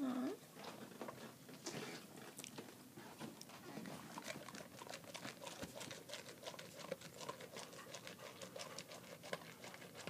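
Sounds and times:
dog crunching kibble: 3.5s - 10.0s.

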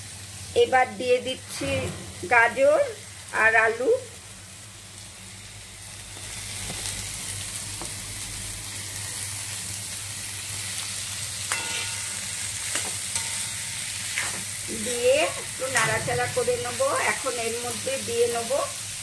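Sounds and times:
vegetables sizzling in oil: 0.0s - 19.0s
metallic ring: 11.5s - 12.5s.

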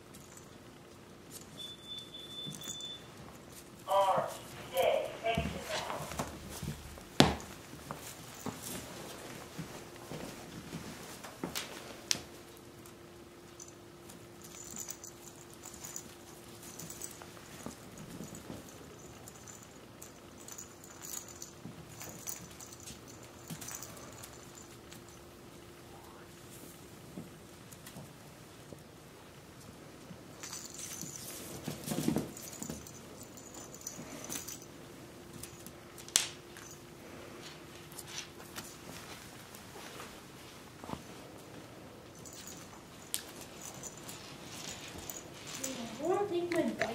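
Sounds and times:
faint steady hum: 0.0s - 46.9s
puppy scuffling and chewing toy: 0.0s - 46.9s
faint high rattle: 13.5s - 26.2s, 42.1s - 46.9s.

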